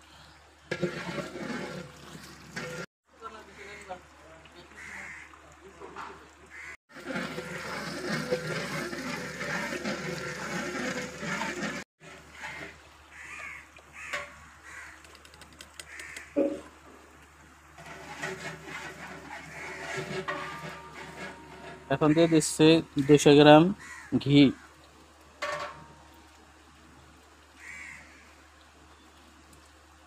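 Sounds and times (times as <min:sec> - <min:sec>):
food simmering and bubbling in pot: 0:00.0 - 0:22.5, 0:23.7 - 0:30.0
metal ladle stirring pot: 0:00.7 - 0:02.9, 0:06.9 - 0:12.8, 0:17.8 - 0:23.2, 0:25.4 - 0:26.0
crows cawing: 0:04.8 - 0:05.4, 0:06.5 - 0:06.8, 0:12.3 - 0:15.2, 0:15.8 - 0:16.7, 0:23.8 - 0:24.7, 0:27.6 - 0:28.4.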